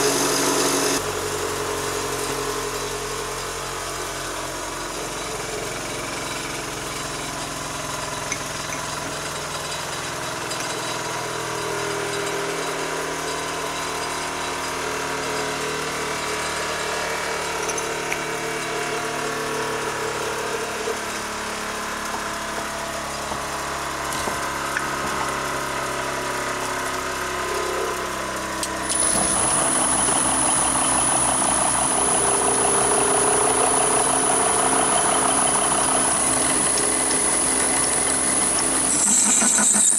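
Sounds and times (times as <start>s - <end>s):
lathe spindle whine: 0.0s - 1.4s, 4.9s - 39.9s
machine hum: 10.8s - 39.9s.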